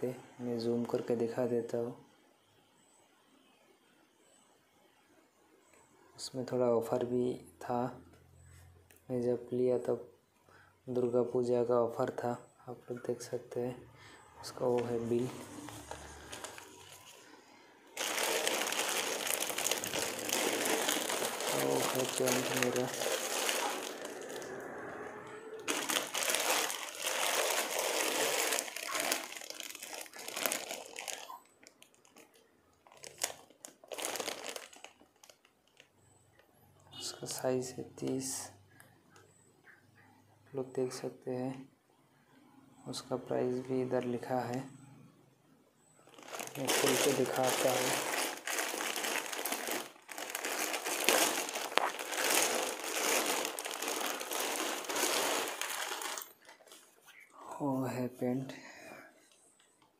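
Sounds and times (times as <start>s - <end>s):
plastic bag crinkling: 14.4s - 36.4s, 46.0s - 57.3s.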